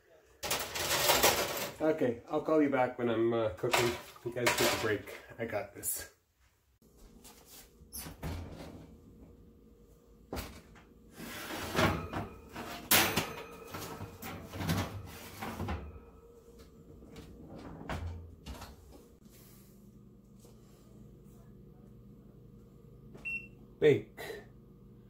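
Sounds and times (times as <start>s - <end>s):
metal oven rack clattering: 11.3s - 16.0s.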